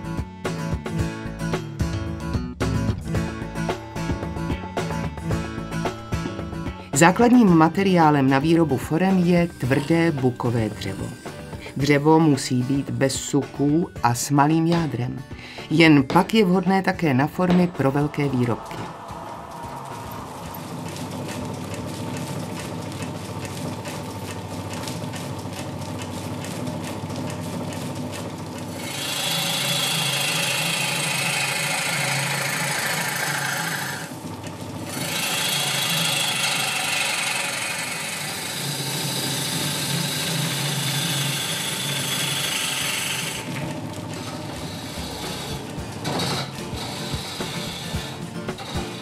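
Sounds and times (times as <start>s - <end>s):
lathe motor hum: 9.0s - 12.2s, 17.6s - 49.0s
chisel rasping on wood: 28.8s - 34.1s, 35.0s - 43.5s, 44.2s - 49.0s.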